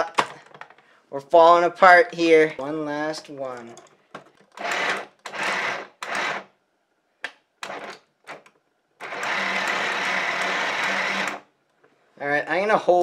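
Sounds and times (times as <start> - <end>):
toy engine motor whirring and clattering: 4.4 - 6.5, 9.0 - 11.4.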